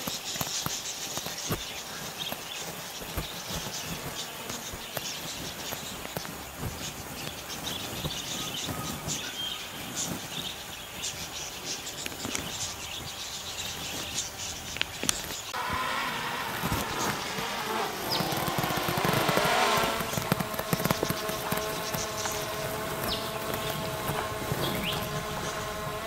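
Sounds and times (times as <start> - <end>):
birds chirping: 0.0 - 26.0
insects trilling: 0.0 - 26.0.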